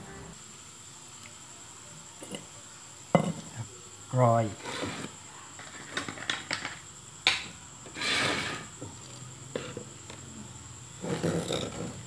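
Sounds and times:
rustling scrape: 4.6s - 6.0s, 7.9s - 8.8s, 11.0s - 12.0s.

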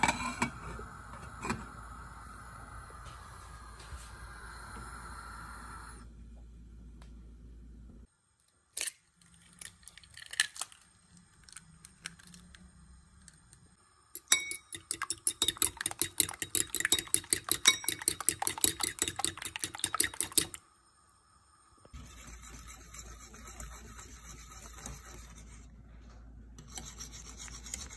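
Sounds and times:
gas burner rushing: 0.0s - 6.1s
egg beaten on ceramic plate: 14.2s - 20.6s, 22.0s - 25.7s.

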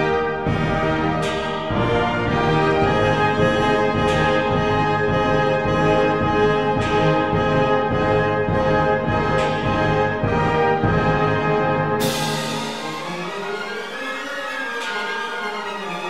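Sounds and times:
brass orchestral chords: 0.0s - 16.0s.

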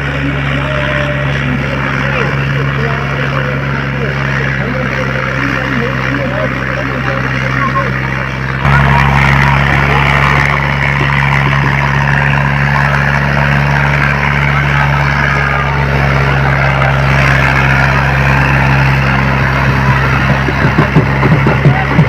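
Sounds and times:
tractor diesel engine under load: 0.0s - 22.0s
crowd shouting: 7.0s - 22.0s.

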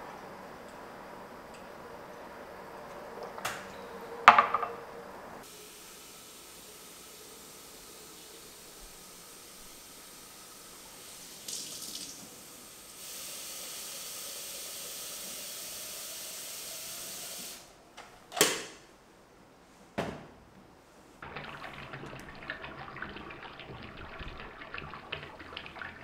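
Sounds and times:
tap water running into pitcher: 7.2s - 17.6s, 21.2s - 26.0s.

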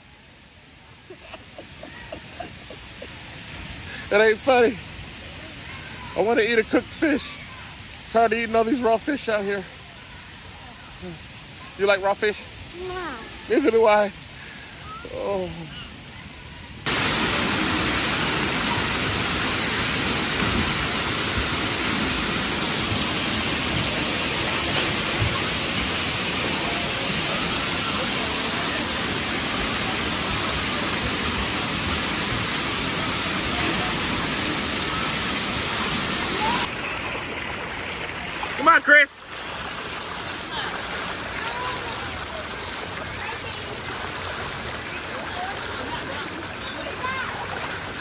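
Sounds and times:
water pouring and splashing: 16.8s - 48.0s.

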